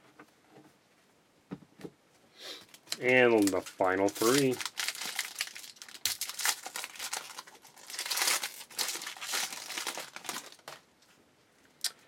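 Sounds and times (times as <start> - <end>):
foil wrapper tearing and crinkling: 2.8 - 10.8.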